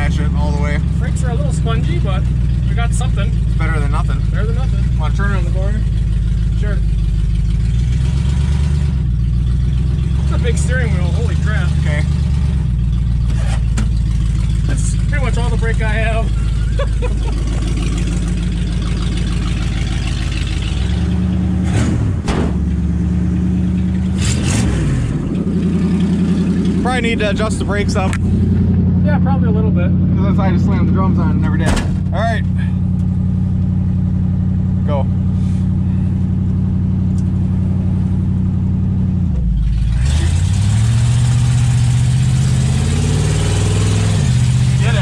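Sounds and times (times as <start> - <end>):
car engine idling: 0.0 - 45.0
sharp engine knocks: 13.2 - 14.5, 21.6 - 22.8, 31.5 - 32.2.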